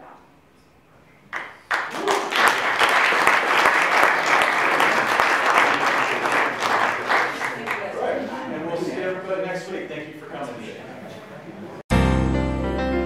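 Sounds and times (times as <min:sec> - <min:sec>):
audience applauding: 0:01.3 - 0:08.2.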